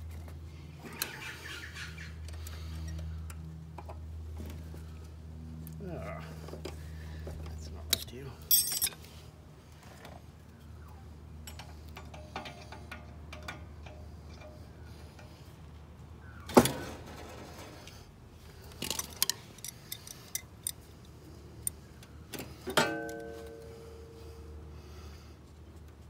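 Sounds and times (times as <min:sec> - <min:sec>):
hand tools clinking on metal: 0:08.0 - 0:09.0
metal clang ringing: 0:22.8 - 0:23.7.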